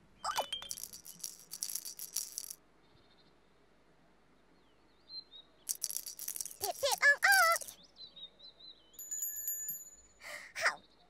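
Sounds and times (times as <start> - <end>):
shaker rattling: 0.3 - 2.6, 5.7 - 7.8.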